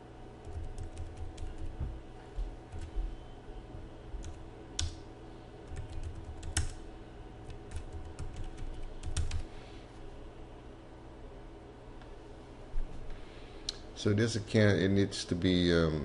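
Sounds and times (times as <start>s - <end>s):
keyboard typing: 0.4s - 1.8s, 5.7s - 6.8s, 7.4s - 9.5s.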